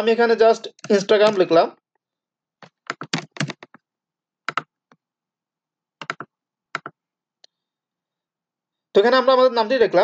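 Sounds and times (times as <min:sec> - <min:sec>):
computer keyboard typing: 0:00.7 - 0:02.0, 0:02.6 - 0:05.0, 0:06.0 - 0:07.0.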